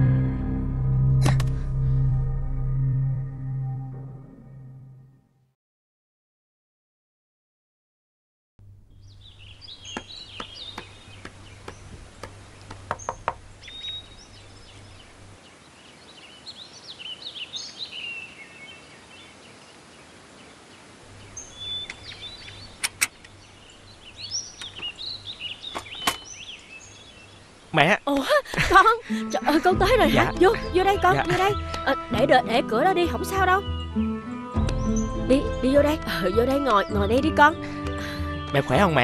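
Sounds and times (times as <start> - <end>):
small birds chirping: 8.9 - 39.0
knocking on a door: 12.7 - 13.4.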